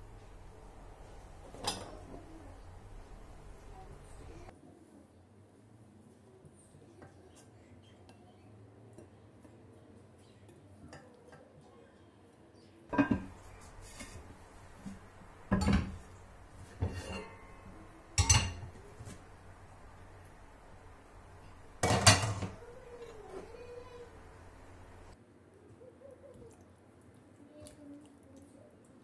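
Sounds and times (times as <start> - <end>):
cookware clattering on stove: 1.5 - 2.2, 12.9 - 19.5, 21.7 - 22.6.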